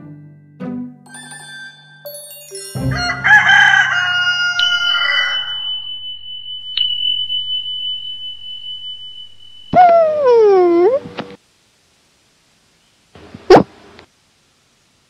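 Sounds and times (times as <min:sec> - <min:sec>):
thin steady high tone: 0:01.1 - 0:03.0, 0:04.6 - 0:11.2
rooster crowing: 0:02.8 - 0:05.7.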